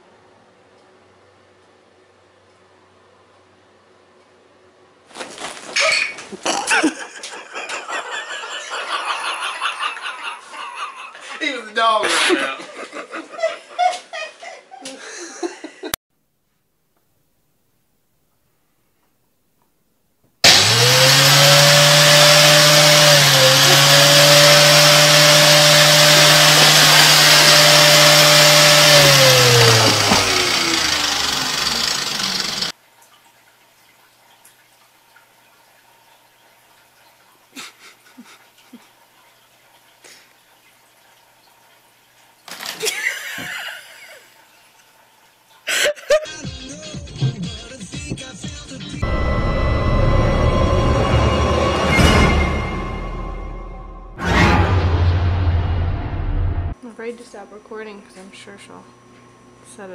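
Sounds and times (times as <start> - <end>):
vacuum cleaner motor whine: 20.4 - 32.7.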